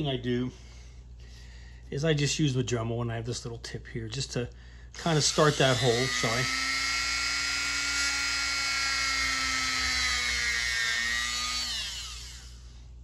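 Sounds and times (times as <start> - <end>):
rotary tool whining: 5.0 - 12.7
rotary tool spinning down: 5.3 - 12.6.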